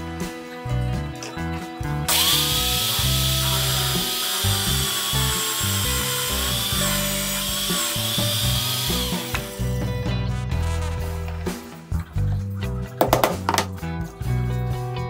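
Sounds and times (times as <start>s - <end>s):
background music: 0.0s - 15.0s
drill press boring into wood: 2.1s - 9.8s.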